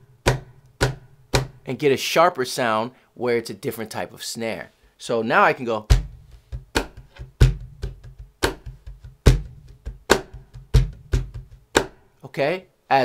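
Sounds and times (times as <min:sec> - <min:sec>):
cajon snare strokes: 0:00.2 - 0:01.7, 0:05.9 - 0:12.0
cajon bass strokes: 0:05.8 - 0:12.0.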